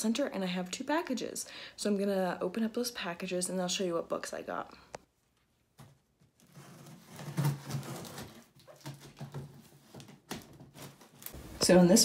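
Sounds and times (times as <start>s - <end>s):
cardboard flaps rustling: 5.7s - 11.8s
packing tape tearing: 6.4s - 11.4s.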